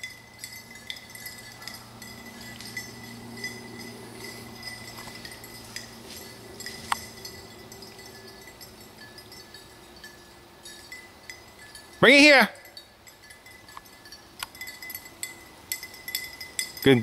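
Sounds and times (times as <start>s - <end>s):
low steady hum: 0.0s - 16.9s
light metallic clinks: 0.0s - 17.0s
footsteps through tall grass: 1.8s - 8.1s.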